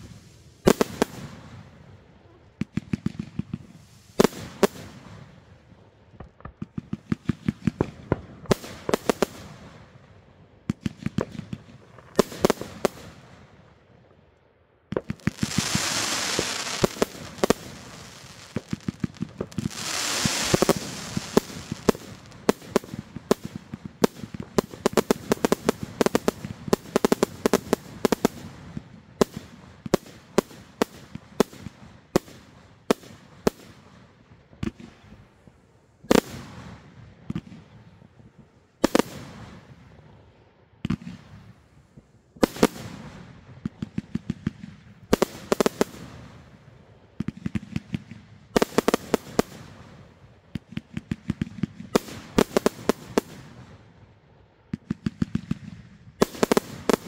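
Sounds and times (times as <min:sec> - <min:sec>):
firework crackle: 0:00.0 - 0:01.7, 0:02.7 - 0:05.3, 0:14.9 - 0:33.7, 0:42.4 - 0:47.9, 0:48.5 - 0:53.6, 0:56.2 - 0:57.0
firework bangs: 0:14.9 - 0:28.5.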